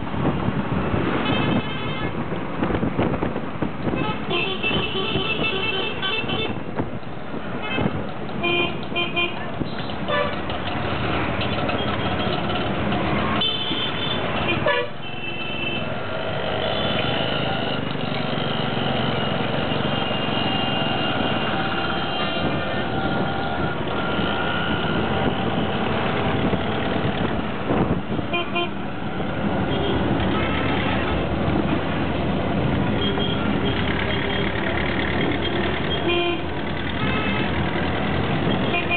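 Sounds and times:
road and wind noise: 0.0 - 38.9
vehicle horns honking: 1.2 - 2.2, 3.9 - 6.6, 7.6 - 10.4, 13.3 - 15.9, 19.2 - 23.2, 28.3 - 28.8, 29.7 - 31.2, 35.9 - 37.6, 38.4 - 38.9
auto-rickshaw engine running: 7.9 - 13.4, 15.8 - 38.9.

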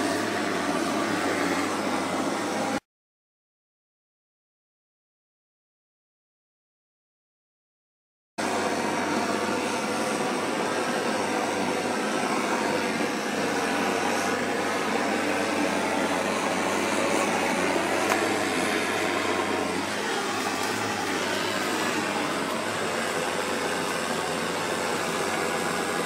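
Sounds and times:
gas torch burning with rushing noise: 0.0 - 2.8, 8.4 - 26.0.

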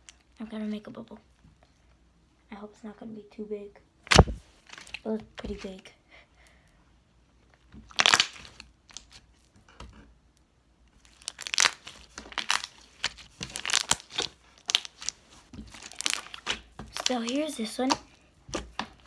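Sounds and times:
slime popping: 7.8 - 9.2, 11.1 - 19.0
wet crackling clicks of slime: 7.8 - 9.2, 11.0 - 19.0.

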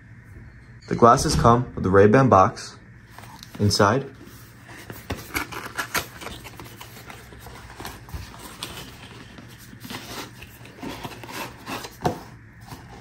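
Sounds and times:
cardboard rubbing and sliding: 3.1 - 13.0.

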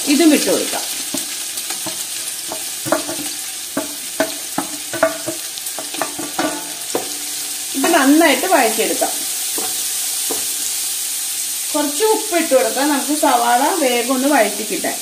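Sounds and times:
onions sizzling in oil: 0.0 - 15.0
wooden spatula knocking on metal: 1.1 - 8.0, 9.0 - 10.7.

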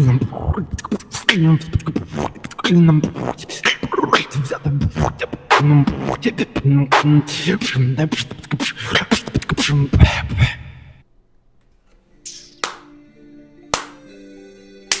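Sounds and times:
beatboxing: 0.0 - 10.9, 12.2 - 12.9.

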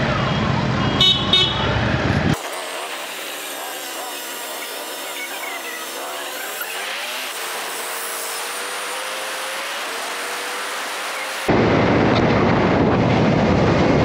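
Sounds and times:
motorcycle engine: 0.0 - 14.0
wind noise on microphone: 11.5 - 14.0.

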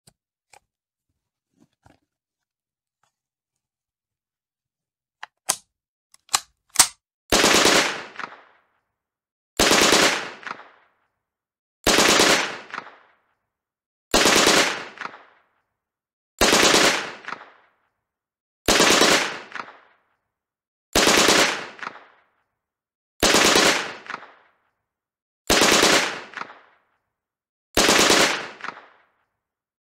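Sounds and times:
sharp clicks: 5.2 - 7.0
submachine gun firing bursts: 6.8 - 8.4, 9.6 - 10.7, 11.9 - 12.9, 14.1 - 15.2, 16.4 - 17.5, 18.7 - 19.8, 21.0 - 22.1, 23.2 - 24.4, 25.5 - 26.6, 27.8 - 29.0.

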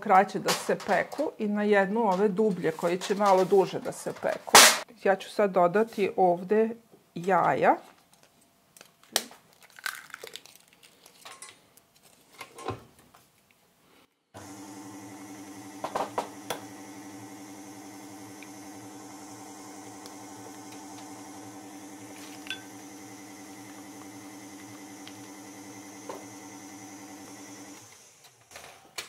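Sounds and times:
stand mixer motor running: 14.4 - 28.2.

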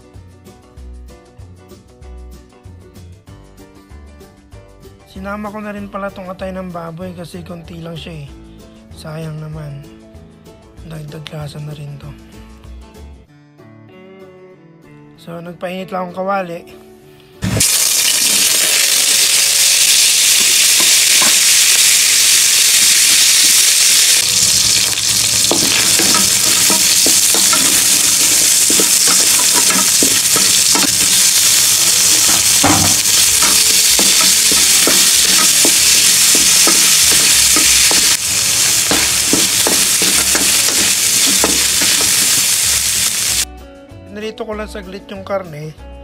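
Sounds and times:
meat sizzling in hot oil: 17.4 - 43.5.

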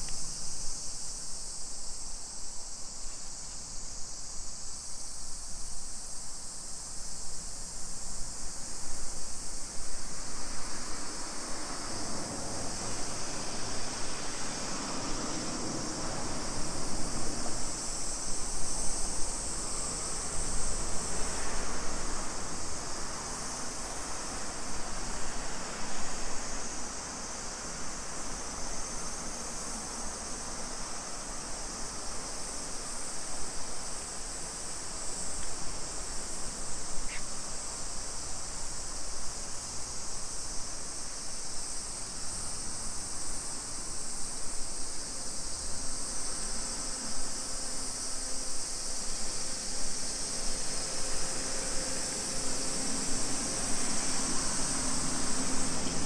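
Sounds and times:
street ambience hum: 0.0 - 56.0
high-pitched insect buzzing: 36.7 - 38.0.

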